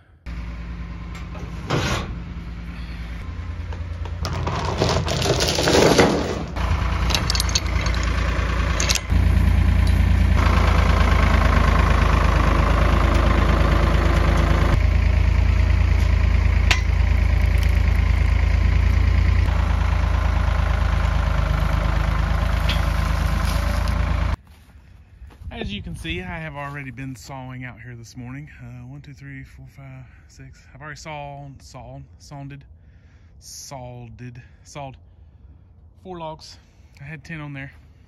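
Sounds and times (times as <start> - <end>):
tractor engine running: 0.2 - 24.7
clanks and rattling: 3.7 - 9.2.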